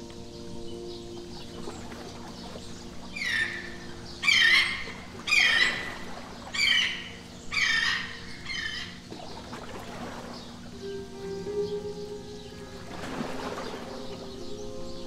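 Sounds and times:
steady low drone: 0.0s - 15.0s
bird squawking call: 3.2s - 9.0s.

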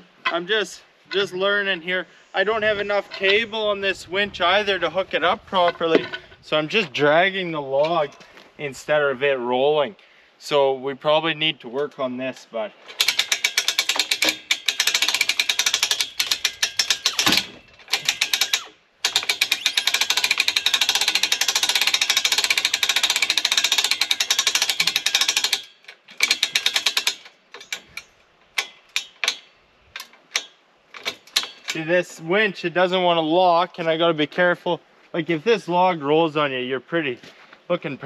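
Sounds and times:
log dragging: 0.0s - 9.0s
winch ratchet clicking: 12.9s - 31.9s.

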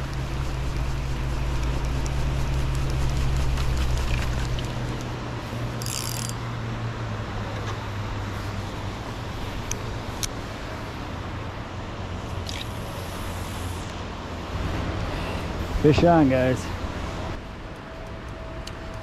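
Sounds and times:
boat motors droning: 0.0s - 6.3s
background noise wash: 0.0s - 18.9s.

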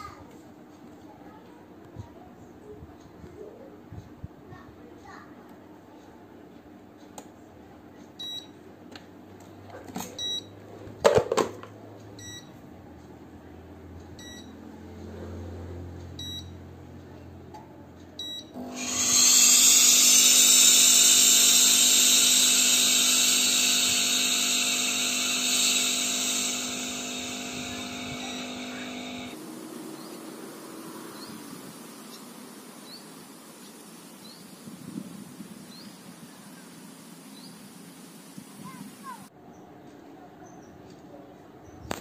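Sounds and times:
short beeps: 10.2s - 10.5s, 12.2s - 12.5s, 14.2s - 14.5s, 16.2s - 16.5s, 18.2s - 18.5s
pump hum: 18.6s - 29.8s
steam hissing: 18.7s - 34.5s.

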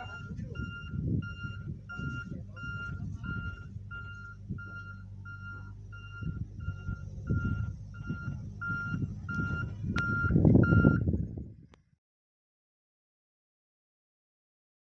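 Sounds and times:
reversing alarm beeping: 0.0s - 11.1s
wind buffeting microphone: 0.0s - 11.9s
engine hum: 0.0s - 12.0s.

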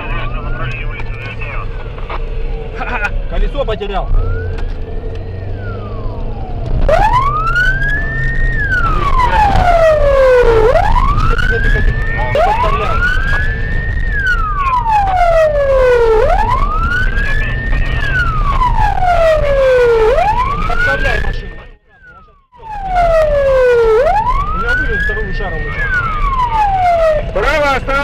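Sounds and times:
car engine rumble: 0.0s - 28.0s
police siren wailing: 0.0s - 28.0s
road noise: 0.0s - 28.0s.

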